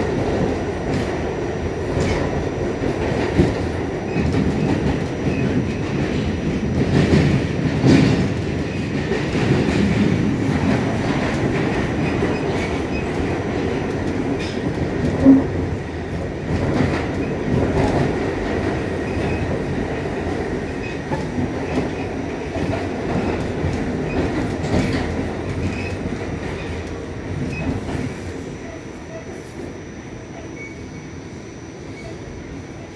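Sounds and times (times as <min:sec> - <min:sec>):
subway car rumble: 0:00.0 - 0:32.9
brief loud tone: 0:28.5 - 0:32.9.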